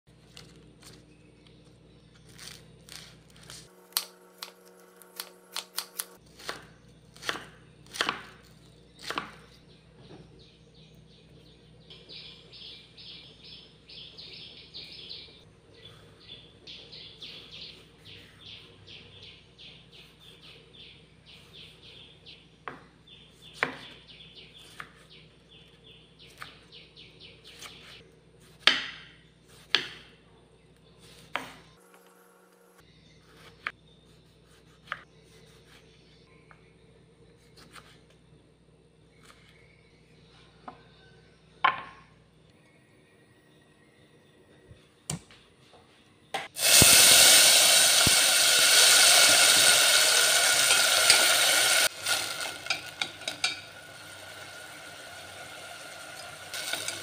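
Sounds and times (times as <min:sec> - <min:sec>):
knife chopping on wooden board: 0:05.2 - 0:09.6, 0:23.6 - 0:24.0, 0:28.6 - 0:30.1, 0:31.1 - 0:31.7.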